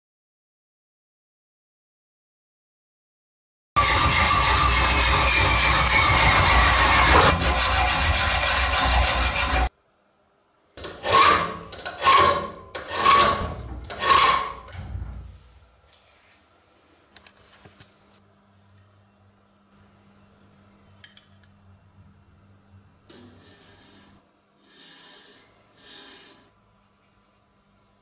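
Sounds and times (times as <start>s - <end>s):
file rasping on metal: 3.8s - 9.7s, 11.0s - 14.7s.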